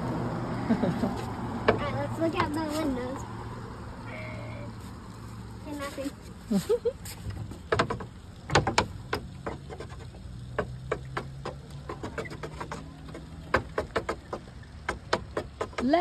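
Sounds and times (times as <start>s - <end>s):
steering wheel clicks and knocks: 7.3s - 16.0s.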